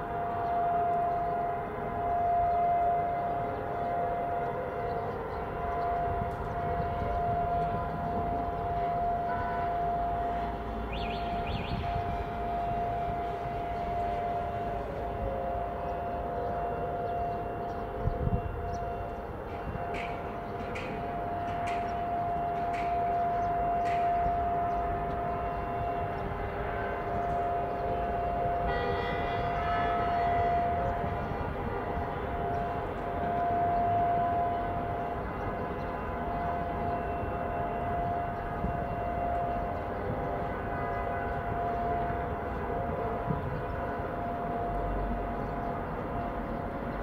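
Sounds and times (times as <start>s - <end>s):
air raid siren steady tone: 0.0s - 47.0s
siren wail rising and falling: 0.0s - 47.0s
vehicle horns chord: 21.3s - 32.7s.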